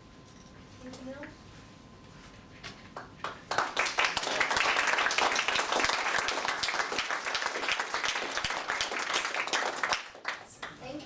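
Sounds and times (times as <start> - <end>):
audience clapping: 3.0 - 10.8.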